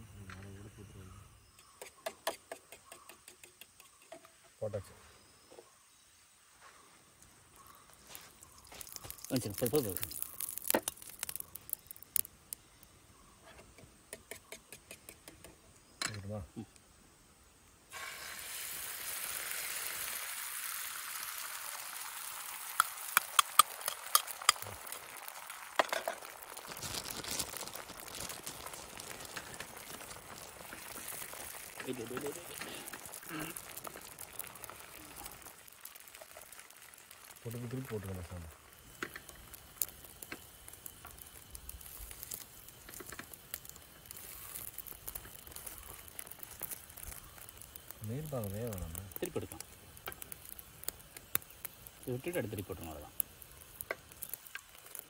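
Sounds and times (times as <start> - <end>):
egg sizzling in a pan: 7.2 - 13.4, 17.8 - 55.0.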